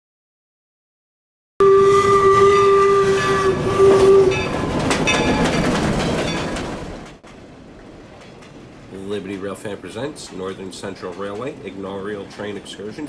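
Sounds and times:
steam whistle: 0:01.6 - 0:05.3
train rumbling and clicking on rails: 0:02.3 - 0:13.0.

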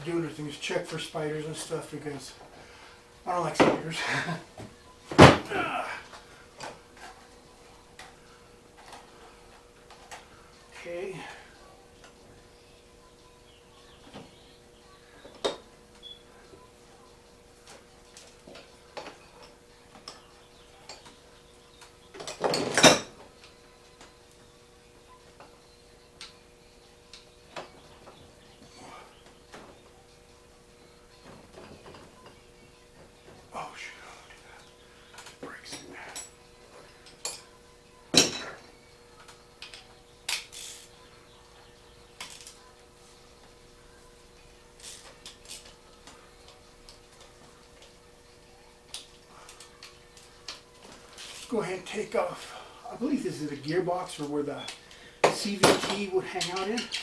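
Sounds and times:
metal tools clinking: 0:22.2 - 0:23.2, 0:35.2 - 0:37.5
hand tools clicking and knocking: 0:54.6 - 0:57.0.

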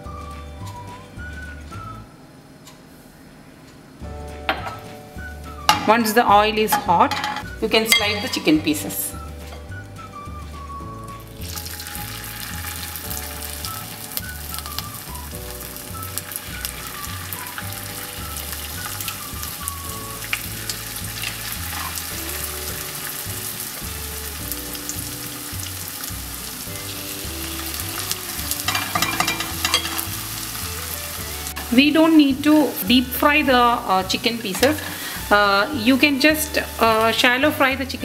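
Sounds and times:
chicken sizzling in hot oil: 0:11.0 - 0:38.0.

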